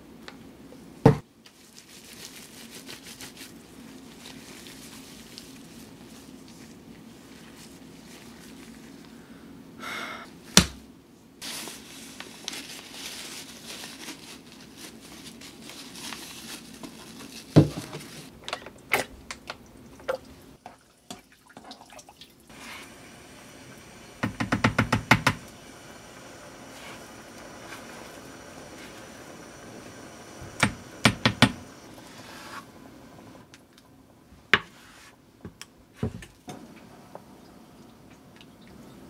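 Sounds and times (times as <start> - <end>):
kitchen knocks and clicks: 24.2 - 25.4, 30.6 - 31.6.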